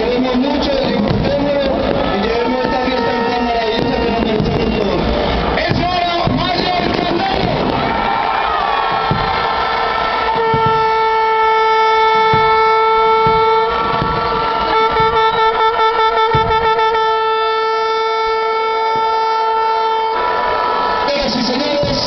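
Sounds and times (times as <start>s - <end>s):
crowd noise: 0.0s - 22.0s
handheld horn blaring: 10.3s - 20.8s.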